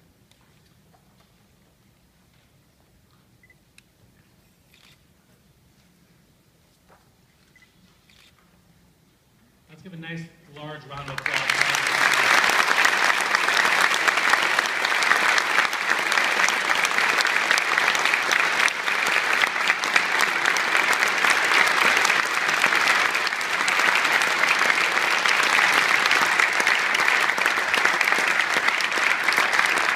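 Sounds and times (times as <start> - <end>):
audience applause: 10.9 - 29.9.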